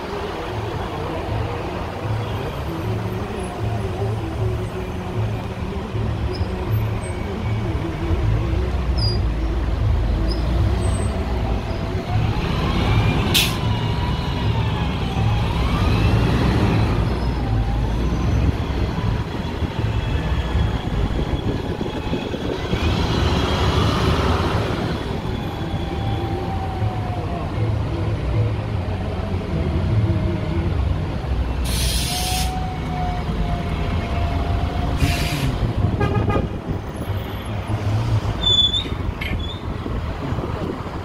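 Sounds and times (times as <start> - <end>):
traffic rumble: 0.0 - 41.0.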